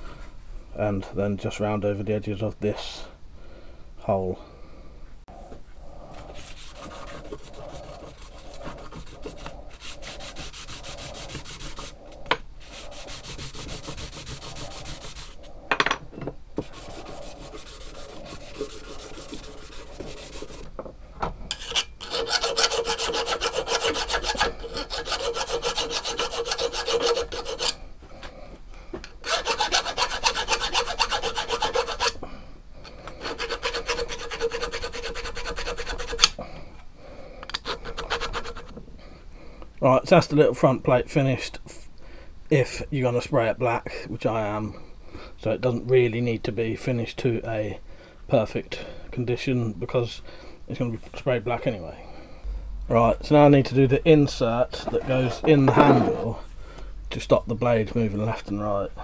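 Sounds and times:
hand file rasping on metal: 6.2 - 12.0, 12.6 - 15.5, 16.6 - 20.7, 21.5 - 27.8, 29.2 - 32.2, 33.1 - 36.4, 37.5 - 38.7, 54.7 - 56.3
metal plate rubbed on sandpaper: 6.2 - 12.0, 12.6 - 15.5, 16.6 - 20.7, 21.6 - 27.8, 29.2 - 32.2, 33.2 - 36.4, 37.6 - 38.7.

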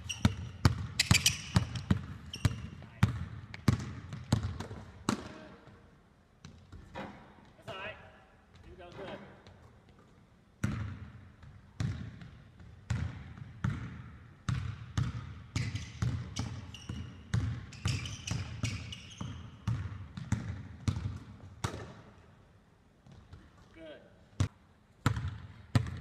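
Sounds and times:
short high squeaks: 0.0 - 2.8, 16.4 - 17.2, 17.8 - 19.6
basketball bouncing on gym floor: 0.0 - 5.8, 6.4 - 7.3, 8.5 - 22.1, 24.4 - 26.0.

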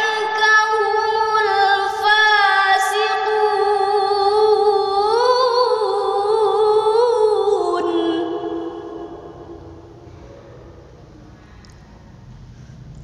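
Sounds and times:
woman chanting recitation: 0.0 - 10.0.

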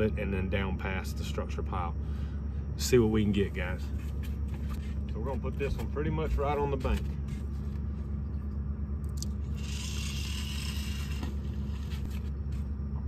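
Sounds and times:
low motor hum: 0.0 - 13.0
line hissing off reel: 9.4 - 12.0.

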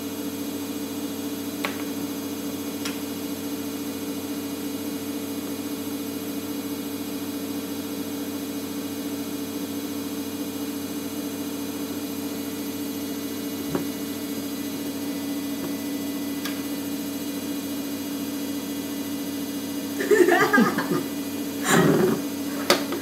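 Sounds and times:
steady hum: 19.6 - 23.0.

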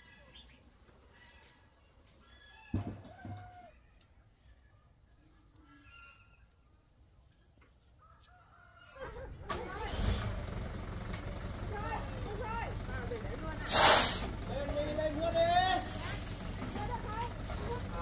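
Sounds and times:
rooster crowing: 2.3 - 3.8, 8.0 - 9.3
truck engine: 9.3 - 18.0.

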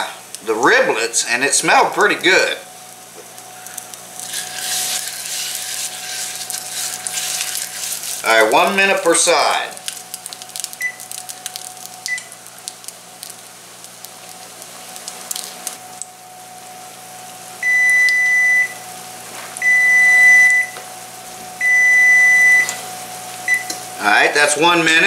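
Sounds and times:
patty sizzling in hot oil: 2.0 - 17.4
timer alarm long beeps: 17.6 - 18.8, 19.6 - 20.8, 21.6 - 22.8, 23.5 - 23.7.

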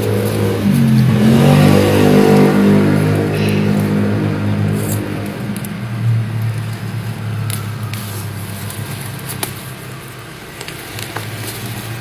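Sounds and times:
hands digging in soil: 0.0 - 12.0
small crackles and clicks: 4.6 - 12.0.

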